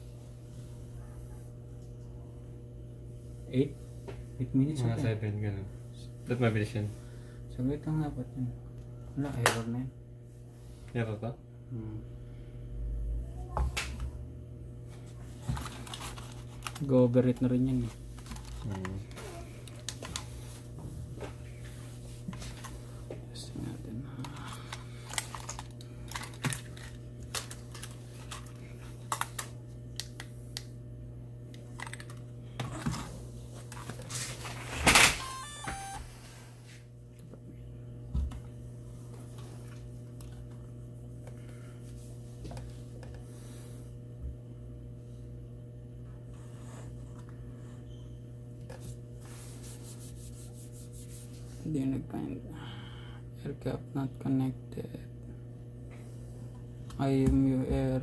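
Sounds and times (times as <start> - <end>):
steady low hum: 0.0 - 58.0
falling series of tones: 35.2 - 36.2.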